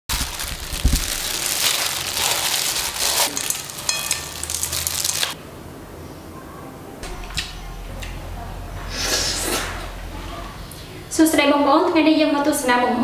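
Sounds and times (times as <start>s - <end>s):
noodle salad squishing and rustling: 0.1s - 5.4s
plastic glove crinkling: 0.1s - 5.4s.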